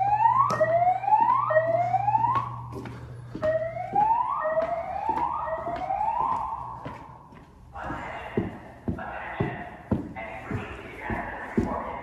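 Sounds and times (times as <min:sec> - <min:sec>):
fire alarm whoop tone: 0:00.0 - 0:02.7, 0:03.4 - 0:06.8
footsteps on tile floor: 0:00.0 - 0:12.0.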